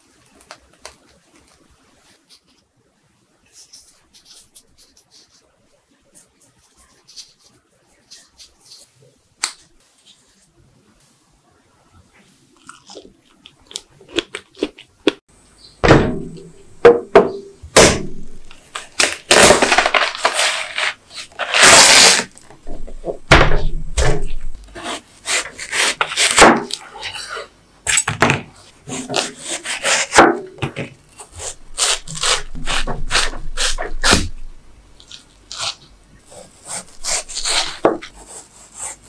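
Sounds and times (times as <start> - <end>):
knife crunching through watermelon: 12.6 - 15.2, 18.5 - 22.5, 31.2 - 34.3, 35.0 - 39.0.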